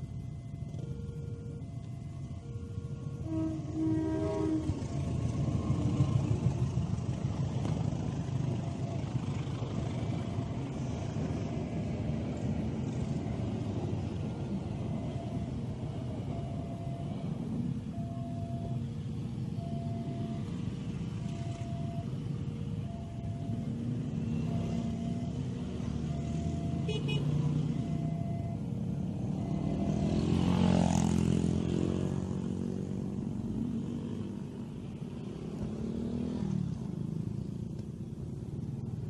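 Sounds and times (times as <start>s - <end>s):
two-tone crossing alarm: 0.0s - 32.2s
motorcycle engines running: 0.0s - 39.0s
motorcycle passing close: 23.4s - 39.0s.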